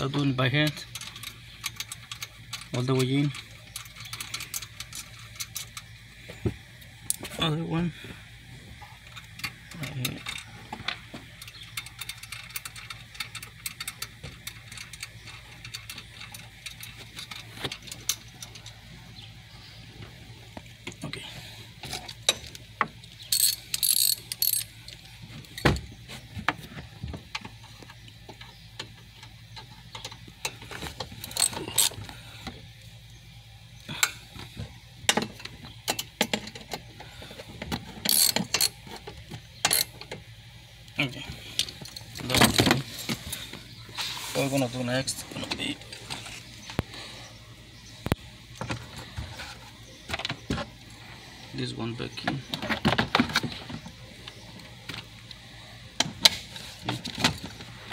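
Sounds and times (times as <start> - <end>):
socket ratchet clicking: 23.2 - 24.7, 38.1 - 38.8.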